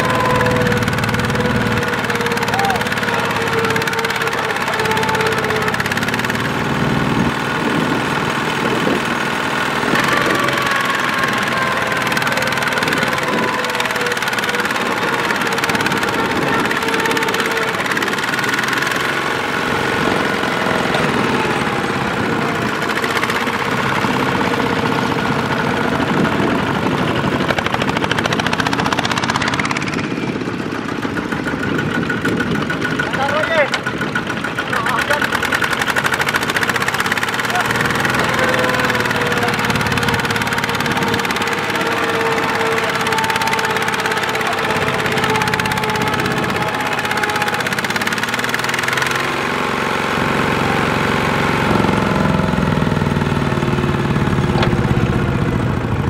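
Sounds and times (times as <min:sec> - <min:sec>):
diesel engine knocking: 0:00.0 - 0:56.0.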